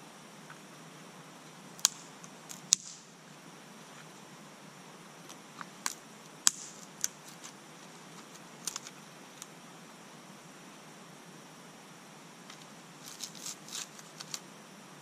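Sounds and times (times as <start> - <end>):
clicks and snaps of handled material: 8.2 - 9.5, 12.6 - 14.4.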